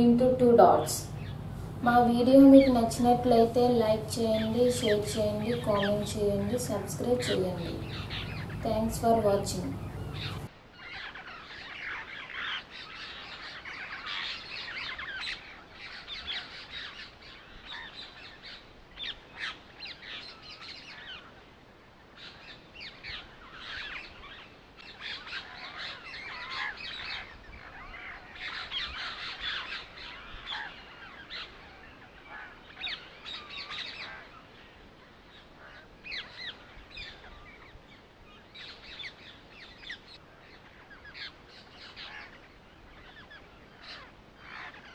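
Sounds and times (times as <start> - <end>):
birds chirping: 0.0 - 19.1.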